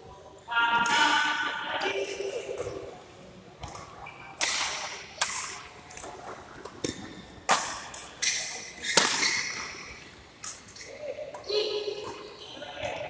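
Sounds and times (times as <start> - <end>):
rackets striking shuttlecock: 4.4 - 6.1, 6.8 - 9.8.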